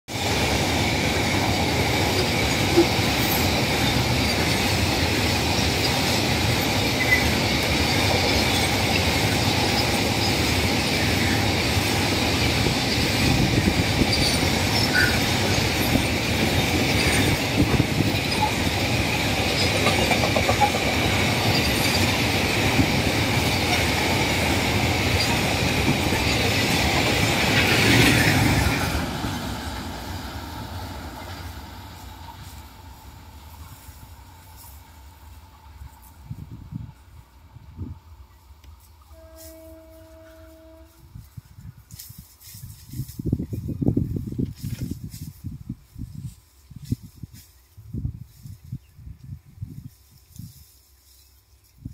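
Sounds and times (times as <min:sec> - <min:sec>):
train wagons rolling past: 0:00.1 - 0:41.0
high ringing wheel squeal: 0:14.0 - 0:16.1.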